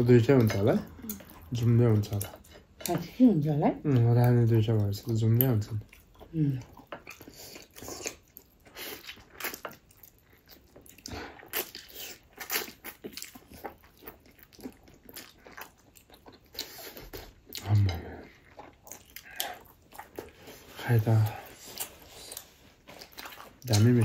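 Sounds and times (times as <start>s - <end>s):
person biting and chewing food: 6.9s - 17.8s.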